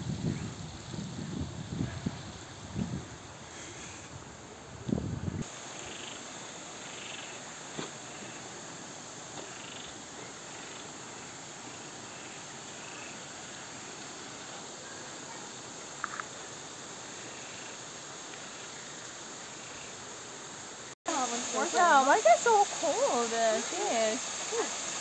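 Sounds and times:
stream running over rocks: 5.4 - 25.0.

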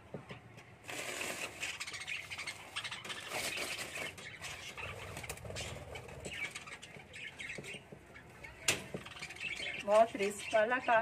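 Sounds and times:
parrots chirping: 0.3 - 11.0
parrots fluttering wings: 0.9 - 10.6.

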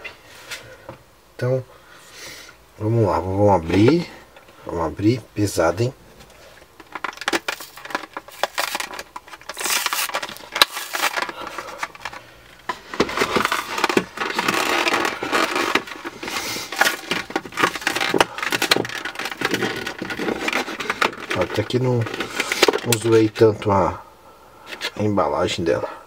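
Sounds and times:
plastic packaging crackling: 6.2 - 23.6.

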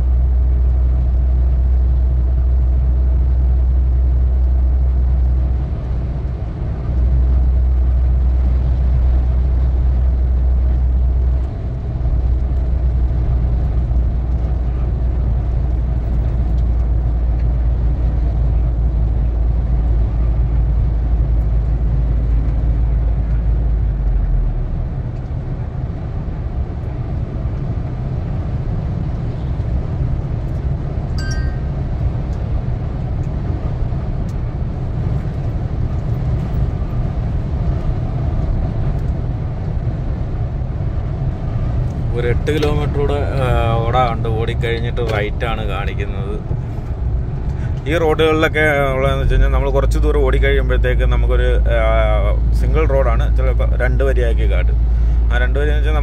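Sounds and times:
truck engine and road noise: 0.0 - 56.0
high-pitched tone: 31.2 - 31.8.

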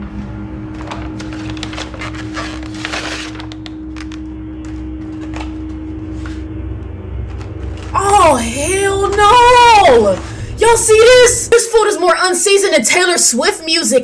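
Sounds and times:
steady low hum: 0.0 - 14.0
paper bag rustling: 0.7 - 6.4.

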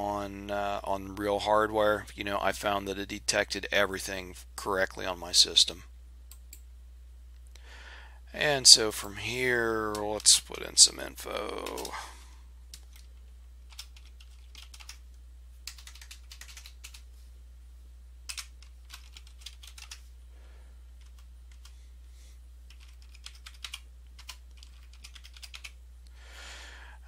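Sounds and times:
steady low hum: 0.0 - 27.0
computer keyboard typing: 11.6 - 12.0, 13.7 - 15.0, 15.6 - 17.1, 18.3 - 20.0, 21.0 - 21.7, 22.7 - 25.8.

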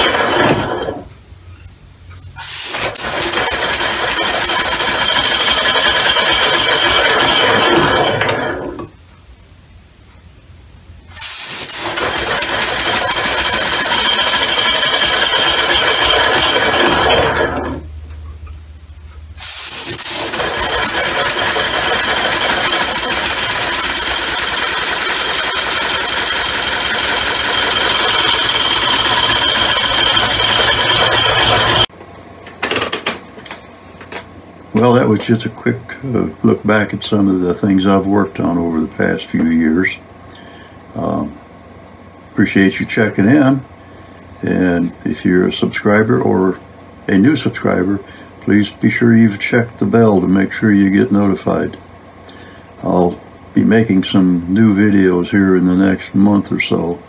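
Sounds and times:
compressed air engine rushing and clattering: 2.4 - 8.4, 11.1 - 17.4, 19.4 - 31.9.

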